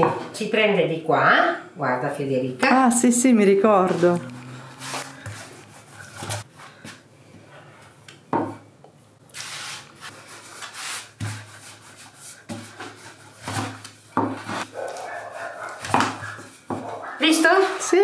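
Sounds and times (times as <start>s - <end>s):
rolling pin swishing over dough: 4.0s - 6.5s, 9.4s - 14.6s.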